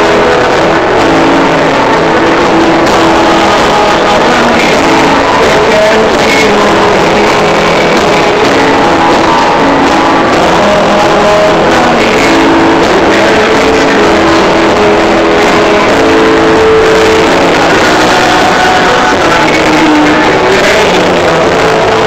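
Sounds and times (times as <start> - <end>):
live church worship music: 0.0 - 22.0.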